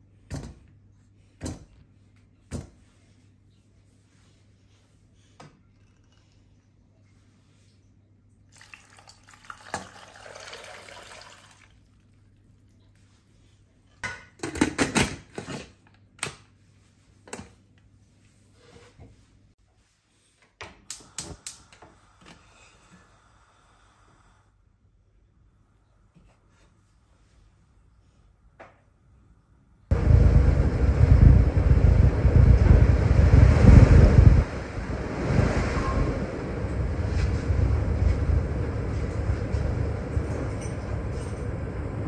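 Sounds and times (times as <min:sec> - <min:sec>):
water pouring into pot: 0:08.5 - 0:12.2.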